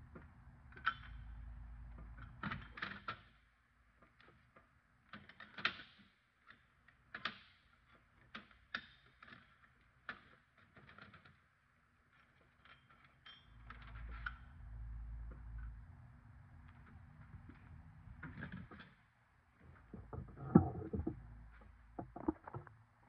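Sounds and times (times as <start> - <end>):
low rumble: 19.8 - 22.7.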